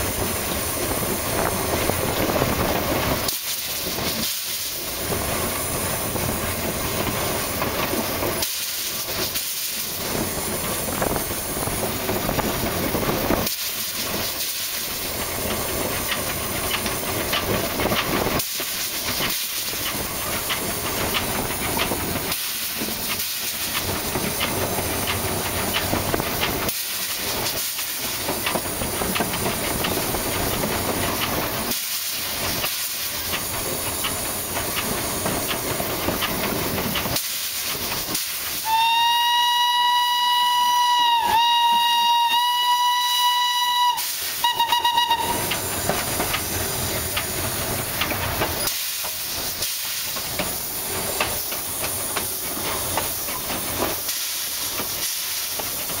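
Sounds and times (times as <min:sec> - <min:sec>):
steam locomotive running: 0:00.0 - 0:56.0
steam whistle blowing: 0:38.6 - 0:45.6.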